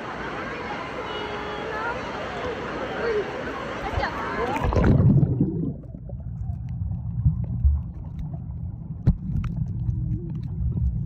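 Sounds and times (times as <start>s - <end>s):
muffled underwater water rumble: 4.5s - 11.0s.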